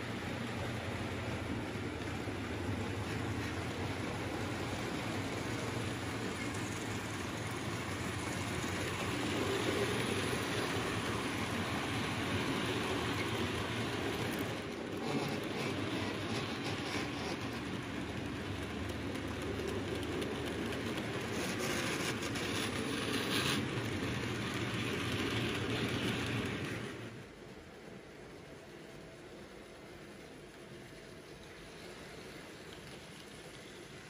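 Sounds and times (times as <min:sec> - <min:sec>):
model train wheels rumbling on rails: 0:00.0 - 0:34.0.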